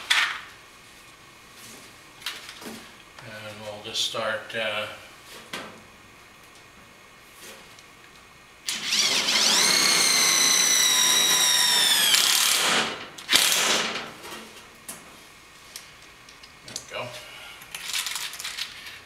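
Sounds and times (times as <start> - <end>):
cordless driver motor whine: 8.6 - 13.6.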